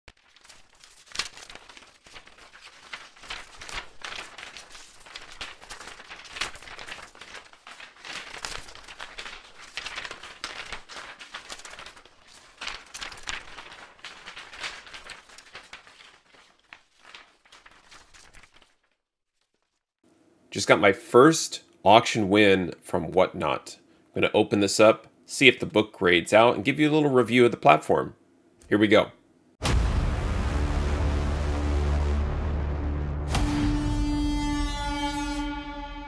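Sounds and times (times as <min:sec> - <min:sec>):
packaging crinkling and rustling: 0:00.1 - 0:19.8.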